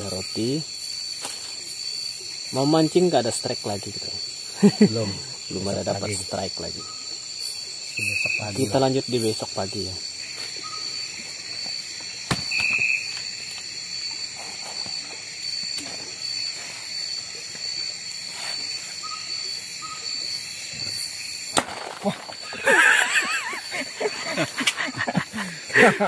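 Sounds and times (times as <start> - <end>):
crickets and insects trilling: 0.0 - 26.0
faint chirps: 4.2 - 11.8, 12.5 - 21.4.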